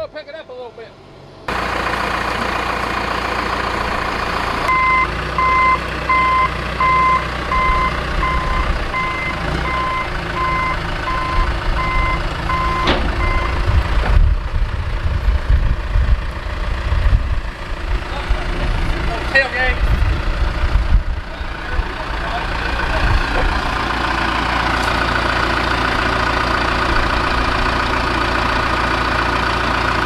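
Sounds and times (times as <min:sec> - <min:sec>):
diesel engines running: 0:00.0 - 0:30.0
backup alarm beeping: 0:04.7 - 0:13.6.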